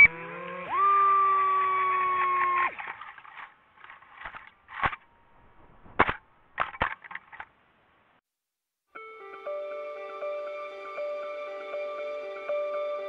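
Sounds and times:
drone motors whining: 0.0s - 1.6s
knocks and scrapes in branches: 2.7s - 7.6s.

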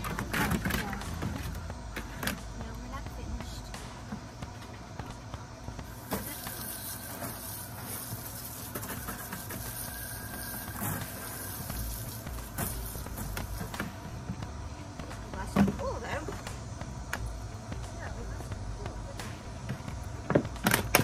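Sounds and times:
hose nozzle spraying water: 5.9s - 13.9s.

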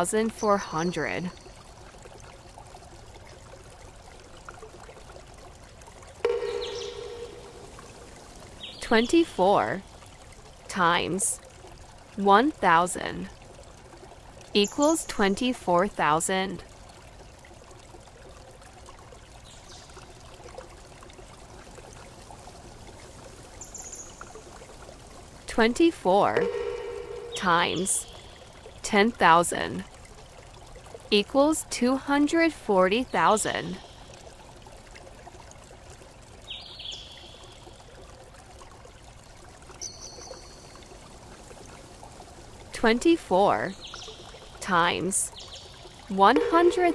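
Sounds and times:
high thin tone: 6.3s - 8.1s, 26.4s - 28.4s, 46.1s - 46.9s.

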